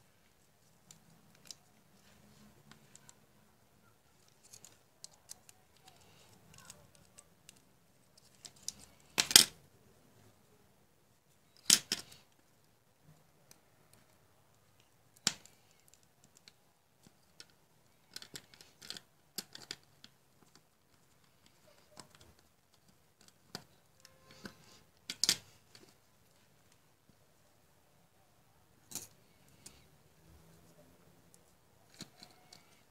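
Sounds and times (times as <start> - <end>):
clicks and scrapes handling circuit board: 0.2 - 9.6, 13.5 - 27.2, 28.8 - 29.9, 30.5 - 32.9.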